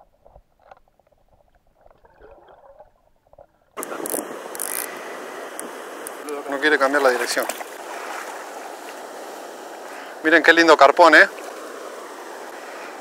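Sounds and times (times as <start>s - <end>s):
sharp clicks: 3.8s - 4.9s
rushing water from waterfall: 3.8s - 13.0s.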